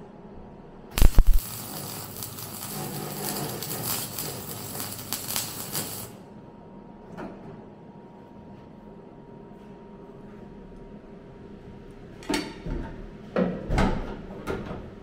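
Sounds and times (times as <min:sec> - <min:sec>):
welder arc crackling and hissing: 0:01.0 - 0:06.3.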